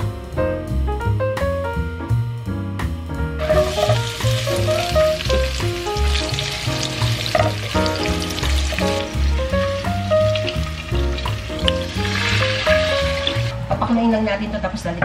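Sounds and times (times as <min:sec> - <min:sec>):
background music: 0:00.0 - 0:15.0
onions sizzling in frying pan: 0:03.4 - 0:13.6.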